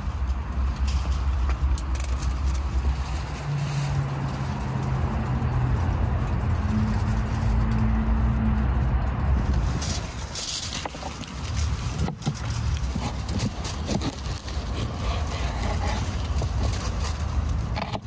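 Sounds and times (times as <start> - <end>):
knife crunching through carrot: 10.6 - 18.0.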